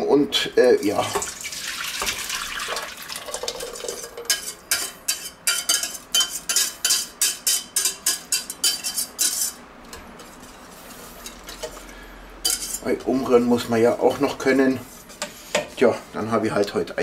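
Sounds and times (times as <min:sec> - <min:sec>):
utensil scraping saucepan: 0:03.3 - 0:15.9.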